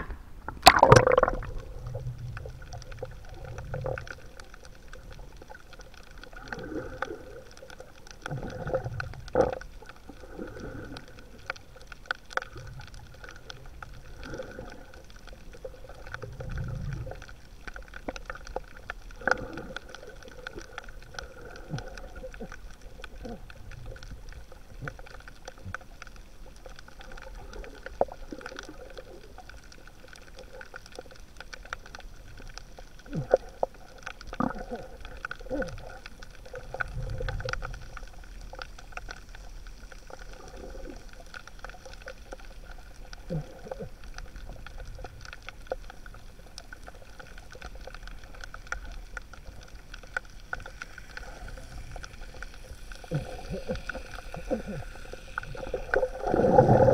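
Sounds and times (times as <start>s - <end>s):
faint underwater clicks: 0.0s - 56.9s
underwater rumbling water: 0.0s - 56.9s
camera splashing into water: 0.6s - 1.6s.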